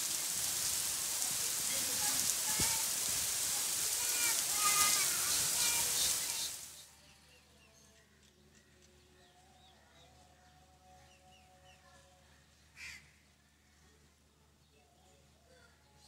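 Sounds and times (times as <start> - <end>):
heavy rain hissing: 0.0 - 6.9
small birds chirping: 1.1 - 13.0
bird calls: 4.3 - 10.1.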